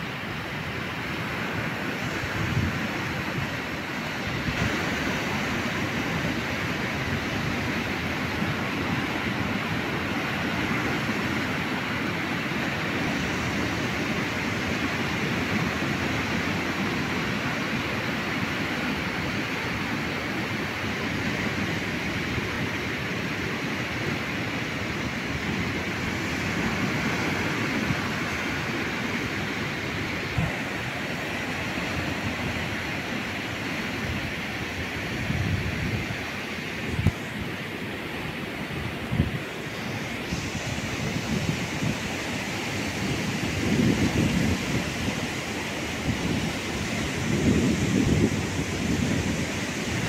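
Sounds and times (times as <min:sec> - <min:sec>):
ocean surf roaring: 0:00.0 - 0:50.0
wind rumbling on microphone: 0:00.0 - 0:50.0.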